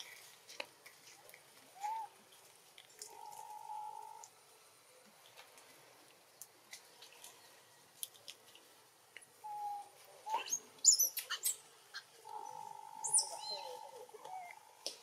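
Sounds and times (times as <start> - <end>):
high-pitched animal chirps: 13.0 - 14.6.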